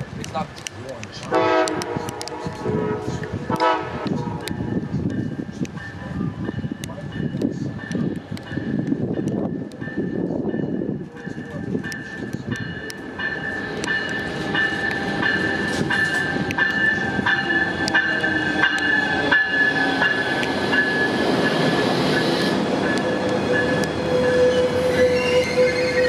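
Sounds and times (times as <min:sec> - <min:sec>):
train wheels clicking over rail joints: 0:00.0 - 0:26.0
high-pitched wheel squeal: 0:22.1 - 0:26.0.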